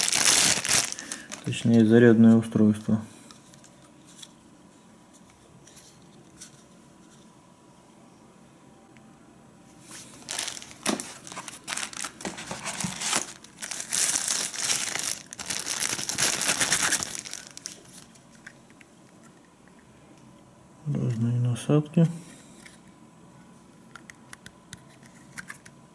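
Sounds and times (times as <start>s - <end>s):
plastic bag crinkling: 0.0s - 2.0s, 9.9s - 18.4s.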